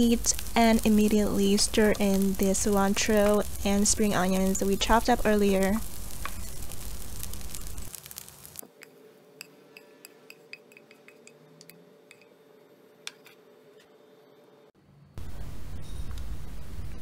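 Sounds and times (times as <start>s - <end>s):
rice sizzling in a pan: 0.0s - 8.8s.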